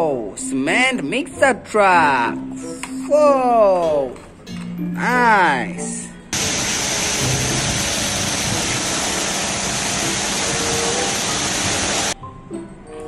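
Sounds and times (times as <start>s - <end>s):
concrete mixer truck running: 6.4s - 12.2s.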